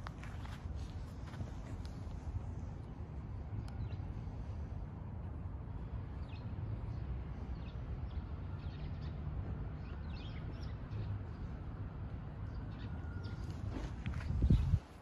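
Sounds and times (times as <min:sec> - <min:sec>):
small birds chirping: 0:05.8 - 0:14.9.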